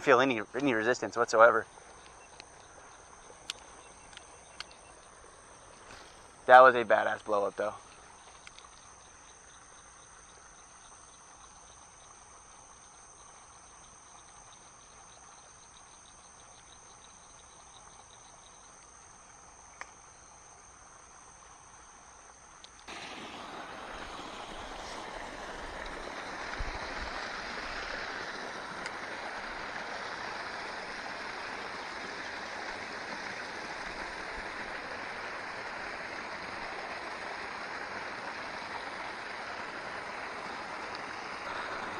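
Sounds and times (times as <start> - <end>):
pulsing chirps: 0.0 - 6.1
creek water trickling: 0.0 - 41.9
small click: 8.4 - 8.9, 19.8 - 20.0.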